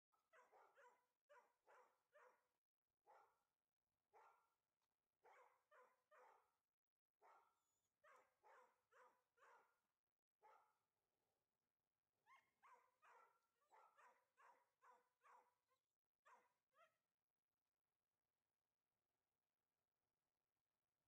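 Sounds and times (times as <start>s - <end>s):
faint dog barking: 0.2s - 2.5s, 3.1s - 3.4s, 5.2s - 6.5s, 7.2s - 9.8s, 12.3s - 17.0s.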